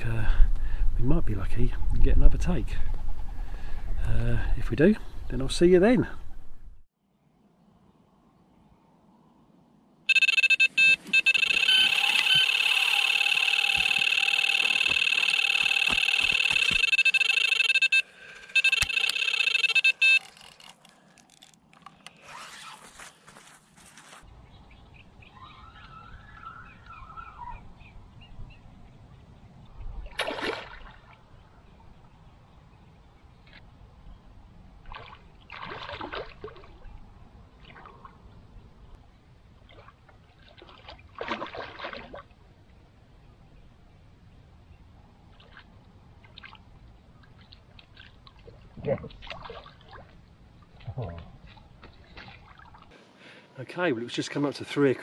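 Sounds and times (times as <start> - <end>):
electronic bite alarm tone: 10.1 - 20.2.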